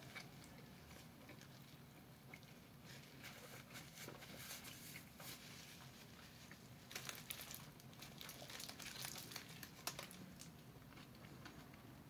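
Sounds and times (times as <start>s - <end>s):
faint chewing: 0.0s - 11.9s
wrapper crinkling: 6.9s - 10.6s.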